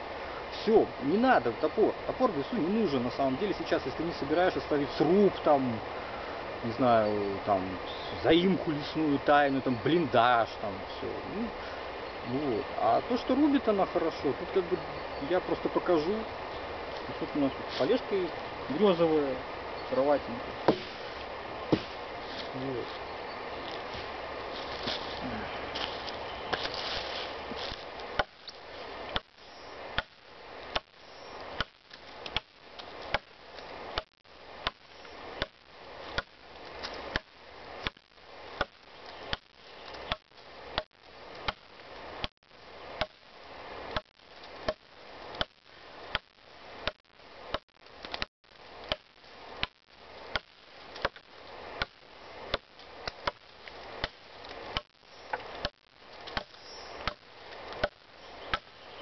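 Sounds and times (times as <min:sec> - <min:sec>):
machete chopping into log: 0:20.7 - 0:21.0, 0:21.7 - 0:22.0.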